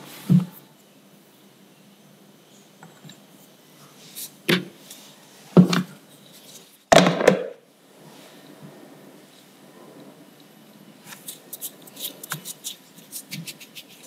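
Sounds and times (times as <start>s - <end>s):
plastic container knocks and rattles: 6.9s - 7.6s.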